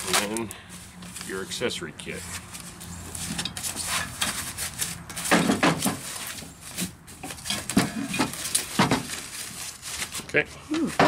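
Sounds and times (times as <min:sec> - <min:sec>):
foam wrap rustling and crinkling: 0:00.0 - 0:11.0
hard parts knocking: 0:05.1 - 0:06.1.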